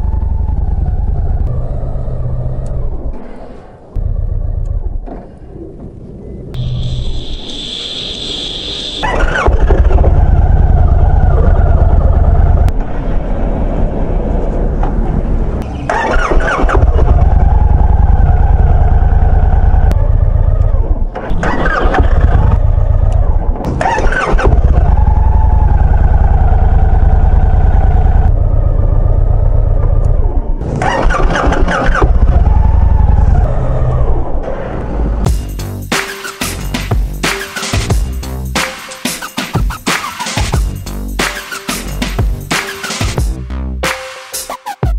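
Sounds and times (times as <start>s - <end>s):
motorcycle engine revving: 15.6s - 35.9s.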